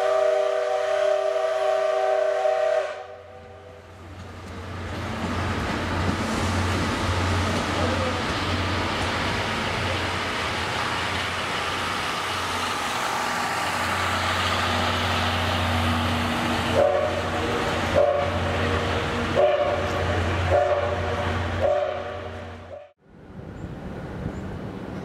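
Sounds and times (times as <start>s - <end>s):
steam locomotive whistle blasts: 0.0s - 3.8s, 16.7s - 17.3s, 17.9s - 18.5s, 19.4s - 22.9s
train coaches rolling past: 0.0s - 25.0s.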